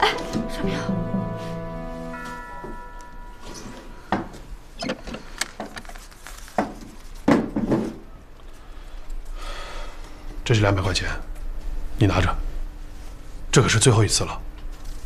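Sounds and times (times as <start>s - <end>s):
background music: 0.0s - 3.8s.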